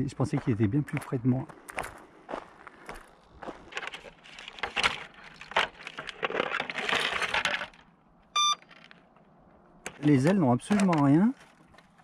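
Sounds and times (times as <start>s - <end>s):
plastic parts clicking and knocking: 3.8s - 7.9s, 9.8s - 12.0s
short electronic beep: 8.4s - 8.6s.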